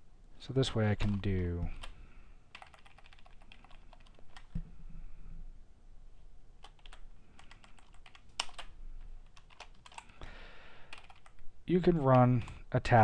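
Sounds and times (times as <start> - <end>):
computer keyboard keystrokes: 2.5 - 4.6, 6.6 - 10.1, 10.9 - 11.4.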